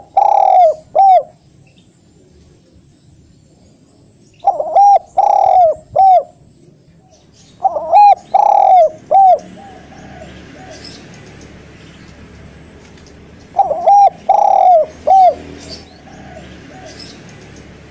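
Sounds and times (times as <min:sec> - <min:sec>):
dove cooing: 0:00.0 - 0:01.4, 0:04.4 - 0:06.4, 0:07.6 - 0:11.5, 0:13.4 - 0:17.9.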